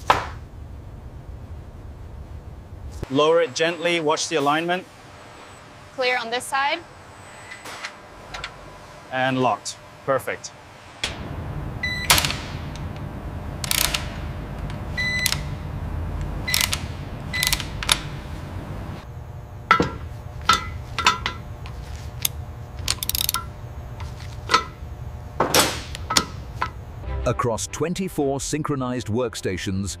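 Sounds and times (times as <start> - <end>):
low factory hum: 0.0 - 29.8
ratcheting torque wrench: 13.6 - 14.2, 16.5 - 18.1, 22.2 - 23.5
metal tools clinking: 19.7 - 21.5.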